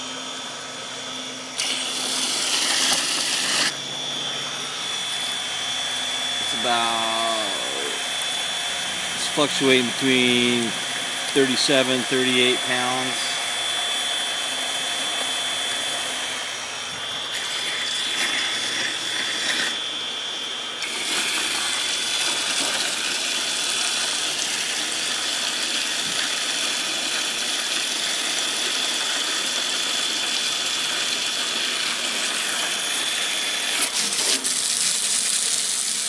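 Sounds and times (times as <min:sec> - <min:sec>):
electric pump whining: 0:00.0 - 0:36.0
hose jet splashing into water: 0:01.6 - 0:03.7, 0:33.7 - 0:36.0.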